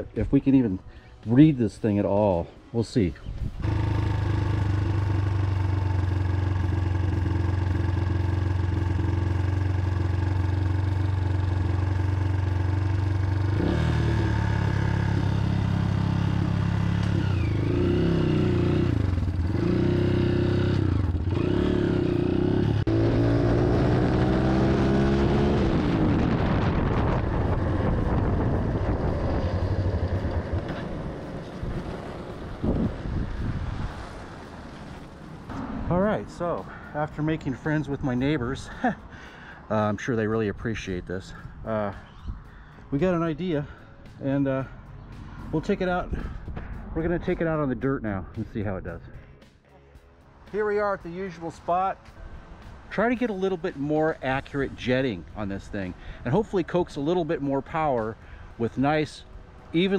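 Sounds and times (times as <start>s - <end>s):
dirt bike engine idling and revving: 3.5s - 47.8s.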